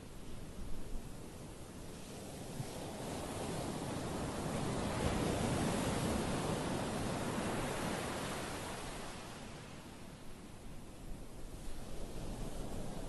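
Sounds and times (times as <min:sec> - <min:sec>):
ocean surf breaking on beach: 0:01.9 - 0:10.2.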